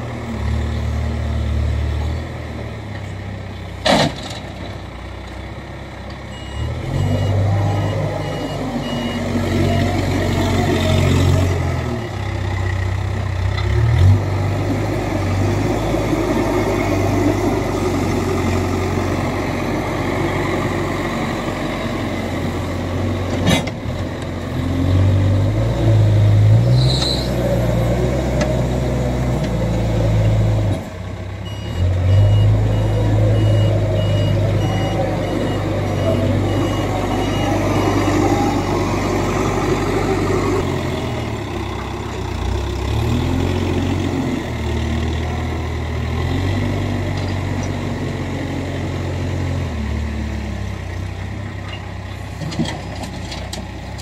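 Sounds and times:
diesel engine under load: 0:00.0 - 0:54.0
reversing alarm beeping: 0:06.3 - 0:10.1, 0:31.4 - 0:38.8.

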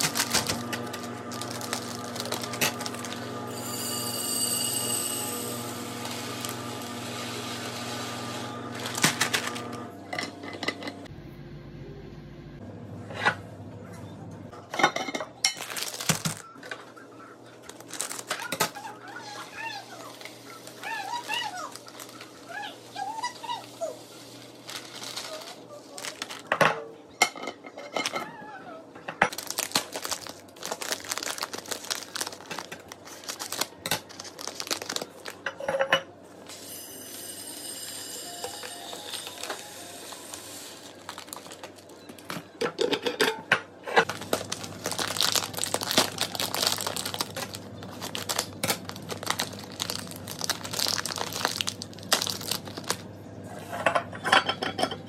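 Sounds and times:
plastic bag crinkling: 0:00.0 - 0:03.4, 0:08.7 - 0:09.8, 0:15.6 - 0:16.8, 0:17.6 - 0:22.7, 0:24.3 - 0:26.6, 0:29.3 - 0:35.4, 0:39.0 - 0:42.4, 0:44.0 - 0:53.1
grains pouring into glass jars: 0:01.3 - 0:07.8, 0:44.1 - 0:53.0.

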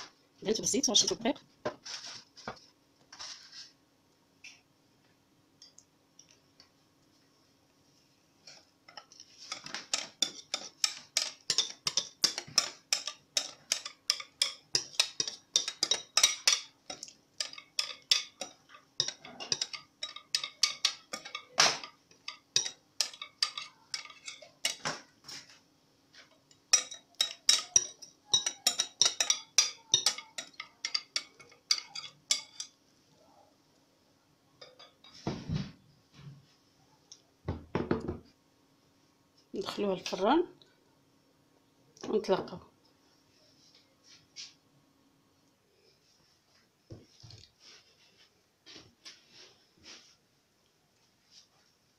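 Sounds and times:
whisk clinking against bowl: 0:08.9 - 0:24.9, 0:26.7 - 0:32.7.

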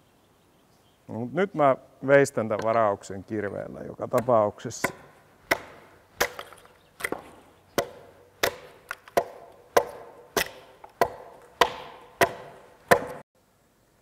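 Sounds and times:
axe chopping into log: 0:04.2 - 0:13.2.

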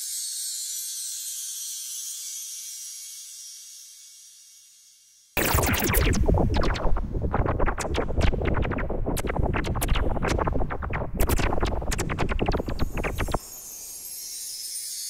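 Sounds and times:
strong low rumble: 0:05.4 - 0:13.5
electronic sharp clicks: 0:05.4 - 0:14.0.

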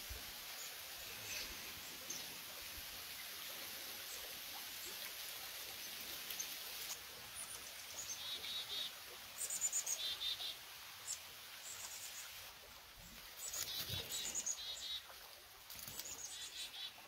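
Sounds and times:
small songbirds chirping: 0:05.7 - 0:12.3, 0:13.0 - 0:15.0, 0:15.7 - 0:17.0.

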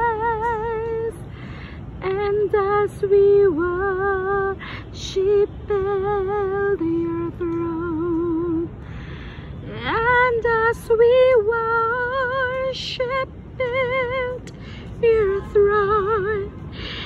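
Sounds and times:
singer breathing: 0:01.2 - 0:02.0, 0:04.6 - 0:05.0, 0:08.8 - 0:09.6, 0:14.5 - 0:15.0, 0:16.7 - 0:17.0.

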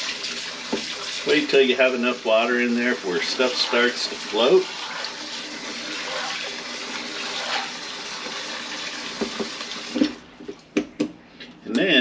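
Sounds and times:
faucet water running into bowl: 0:00.0 - 0:10.2.

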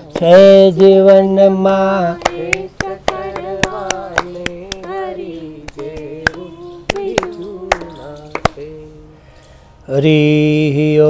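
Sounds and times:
person singing devotional song: 0:00.0 - 0:11.0
hand claps keeping time: 0:00.1 - 0:00.4, 0:01.7 - 0:08.8.

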